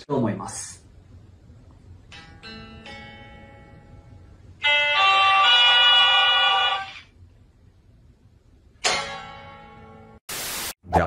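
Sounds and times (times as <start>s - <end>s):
electric guitar chords: 2.1s - 5.6s.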